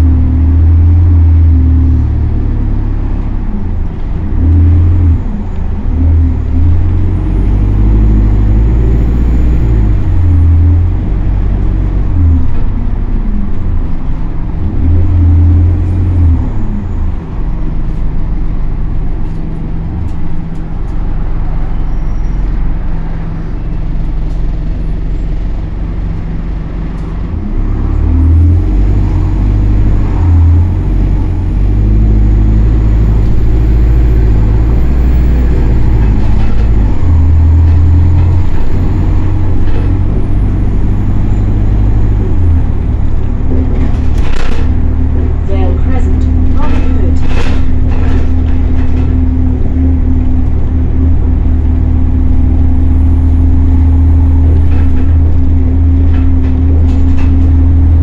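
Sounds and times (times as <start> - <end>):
bus diesel engine revving: 0.0 - 58.0
road and tyre noise: 0.0 - 58.0.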